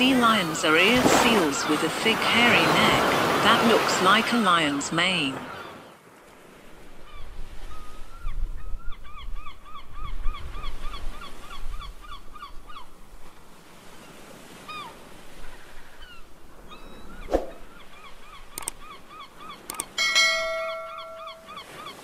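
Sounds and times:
high honking calls: 19.1 - 22.0.

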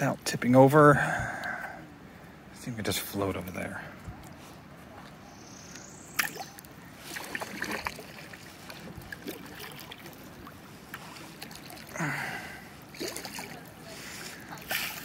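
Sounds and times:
water sloshing and dripping: 6.1 - 15.0
water swishing: 6.2 - 15.0.

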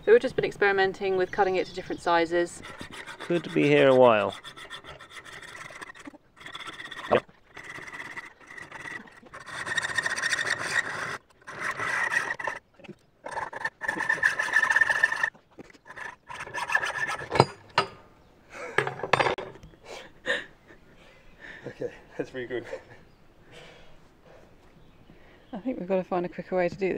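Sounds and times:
hacksaw cutting through bolt: 9.3 - 12.6, 13.3 - 15.3, 15.9 - 17.9.

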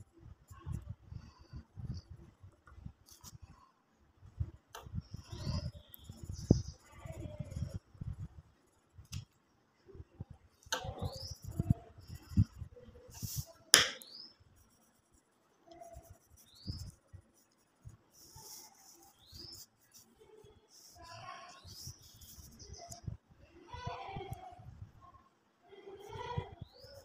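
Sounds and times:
sharp click: 13.8 - 14.1.

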